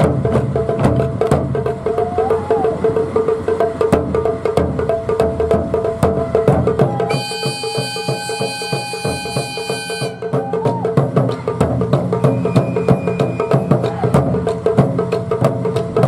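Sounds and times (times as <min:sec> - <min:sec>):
taiko drums playing fast rhythm: 0:00.0 - 0:16.0
high held note: 0:07.1 - 0:10.4.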